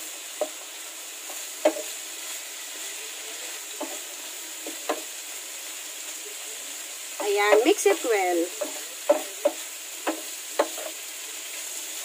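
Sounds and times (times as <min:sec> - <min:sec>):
meat sizzling in frying pan: 0:00.0 - 0:12.0
wooden spatula scraping pan: 0:00.4 - 0:05.1, 0:07.2 - 0:11.0.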